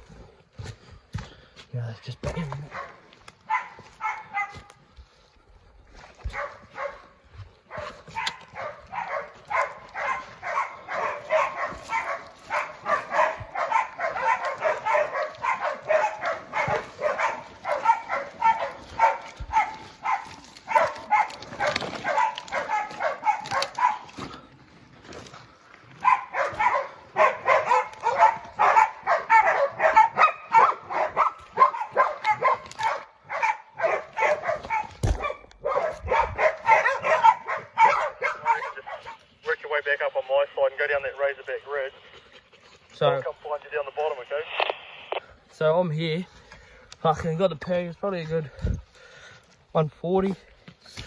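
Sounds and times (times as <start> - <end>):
dogs barking rapidly: 2.3 - 4.9, 6.1 - 24.5, 25.9 - 40.0.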